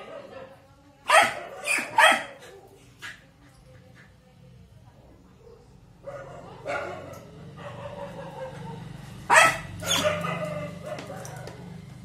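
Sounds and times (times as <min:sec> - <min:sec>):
dog barking: 0:01.1 - 0:02.5, 0:05.4 - 0:11.7.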